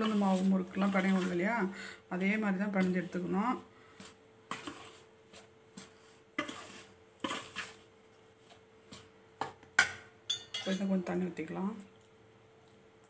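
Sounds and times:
ladle scraping a steel bowl: 0:00.0 - 0:01.7, 0:04.5 - 0:07.9.

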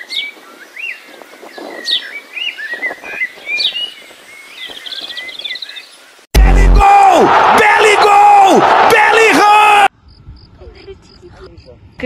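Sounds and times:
small birds chirping and whistling: 0:00.0 - 0:06.0.

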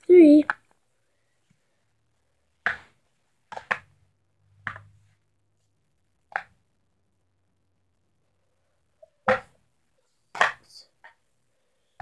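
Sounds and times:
plastic cups clacking: 0:02.6 - 0:03.9, 0:10.3 - 0:11.2.

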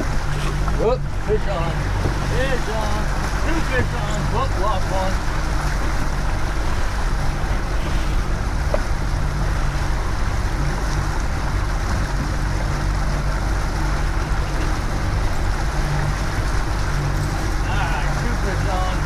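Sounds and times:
outboard motor running: 0:00.0 - 0:19.0
water rushing past boat: 0:00.0 - 0:19.0
wind rushing: 0:06.3 - 0:10.5.

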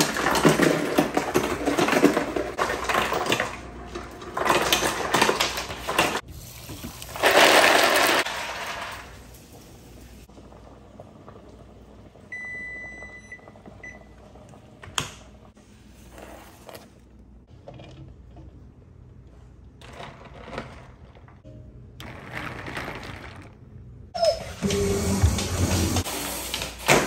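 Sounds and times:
kitchen timer beeping: 0:12.3 - 0:14.2.

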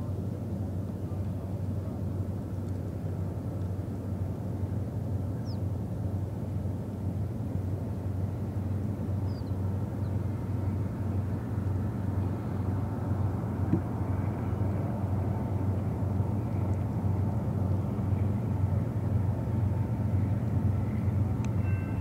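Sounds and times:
distant locomotive engine rumble: 0:00.0 - 0:22.0.

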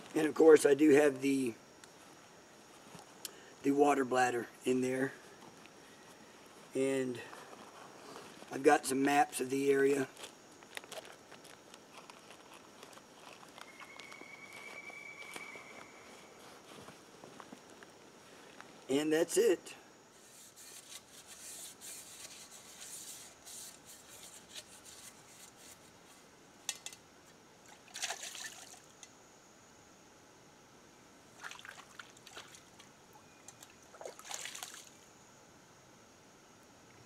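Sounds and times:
water splashes: 0:27.7 - 0:28.9, 0:31.4 - 0:32.9, 0:33.6 - 0:35.0.

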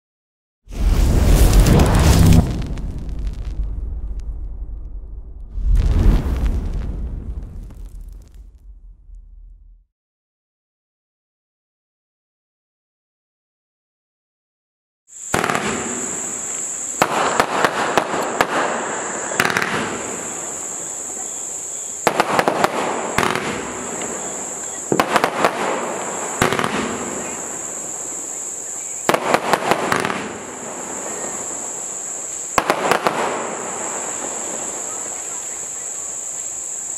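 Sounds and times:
firework hiss: 0:00.7 - 0:04.8, 0:05.5 - 0:09.2, 0:15.1 - 0:36.9
firework cracks: 0:00.7 - 0:09.8, 0:15.3 - 0:21.0, 0:22.0 - 0:28.3, 0:29.0 - 0:31.9, 0:32.5 - 0:35.0.

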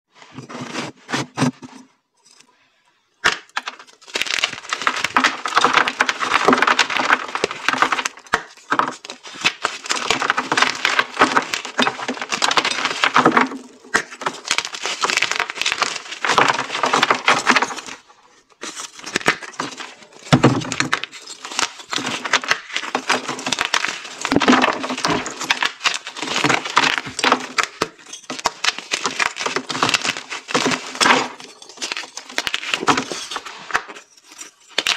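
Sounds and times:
chalk blocks crunching: 0:03.2 - 0:34.9.

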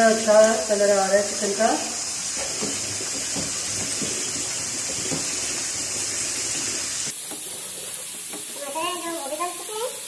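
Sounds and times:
food sizzling in a pan: 0:00.0 - 0:10.0
spatula scraping a pan: 0:02.3 - 0:08.7.

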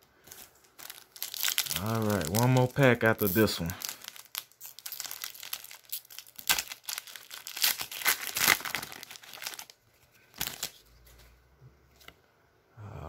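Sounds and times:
foil pack tearing and crinkling: 0:00.2 - 0:10.8
wrapper rustle: 0:00.2 - 0:11.3.

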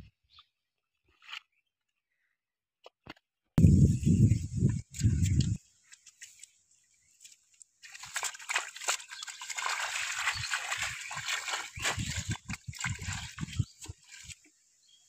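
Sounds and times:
hands splashing in shallow water: 0:07.2 - 0:14.5.

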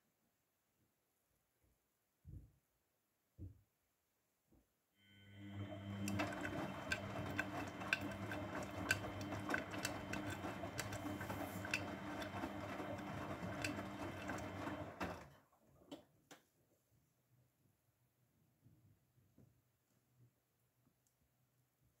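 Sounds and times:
washing machine motor humming: 0:05.0 - 0:15.4.

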